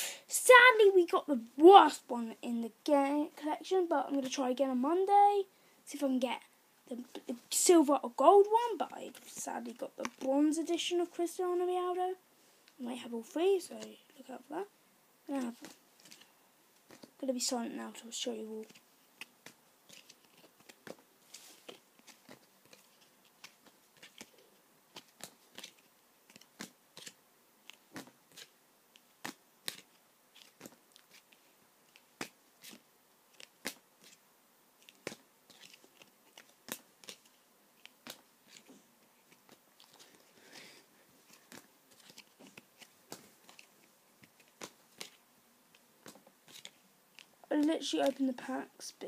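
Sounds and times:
trading cards clicking and rustling: 15.3s - 17.2s, 18.6s - 34.2s, 34.8s - 48.5s.

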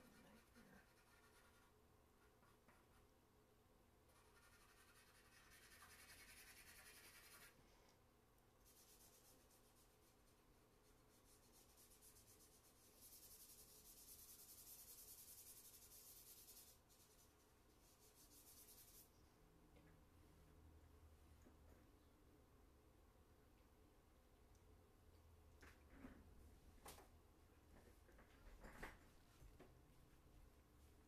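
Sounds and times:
charcoal scratching on paper: 0.0s - 1.8s, 4.1s - 7.6s, 8.6s - 19.1s.

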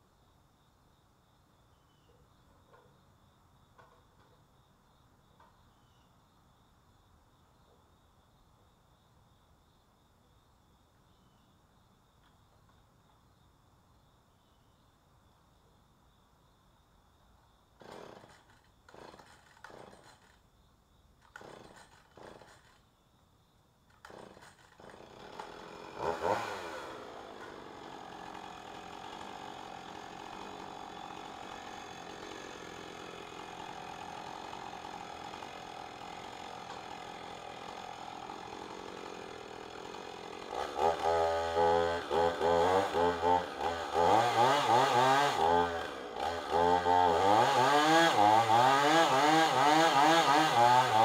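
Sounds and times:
chainsaw revving and cutting wood: 17.8s - 20.4s, 21.2s - 22.8s, 23.9s - 51.0s.

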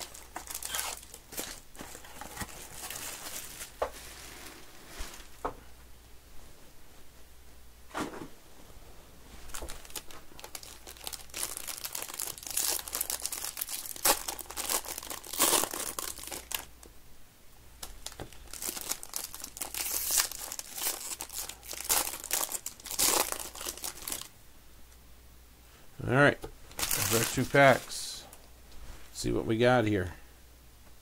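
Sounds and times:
foil wrappers crinkling: 0.0s - 4.2s, 9.5s - 16.8s, 17.8s - 24.3s, 26.7s - 28.3s.

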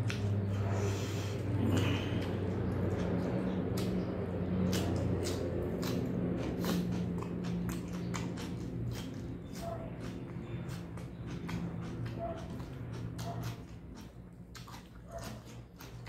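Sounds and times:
lip-smacking clicks: 0.0s - 0.4s, 1.8s - 16.0s
steady low hum: 0.0s - 16.0s
wet chewing: 0.0s - 16.0s.

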